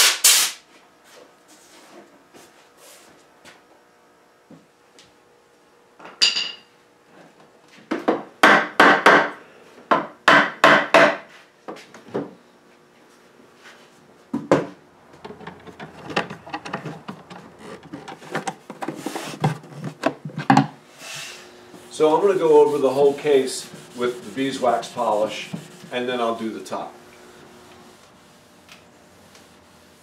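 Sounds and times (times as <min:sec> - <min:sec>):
hammer knocking on wood: 0:09.9 - 0:11.2
screwdriver clicking and scraping: 0:15.2 - 0:19.0.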